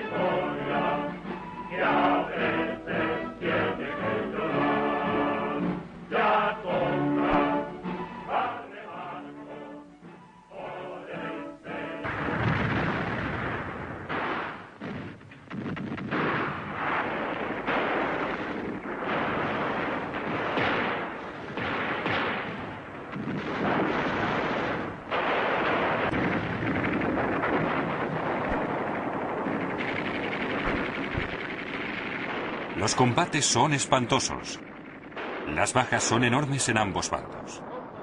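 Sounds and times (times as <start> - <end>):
heavy artillery blasts: 11.9 - 38.0
sustained gunfire: 12.0 - 38.0.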